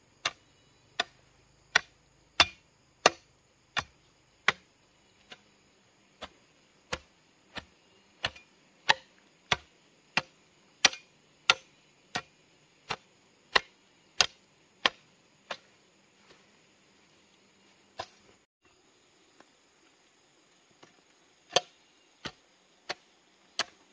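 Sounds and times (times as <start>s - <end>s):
hoe blade chopping into soil: 0.2s - 5.5s, 6.2s - 16.4s, 17.9s - 18.3s, 20.8s - 23.9s.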